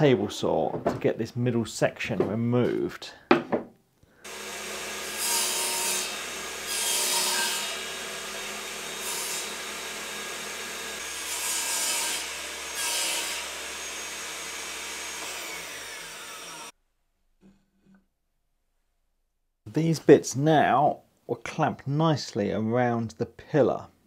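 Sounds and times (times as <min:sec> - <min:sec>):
table saw cutting plywood: 0:04.2 - 0:16.7.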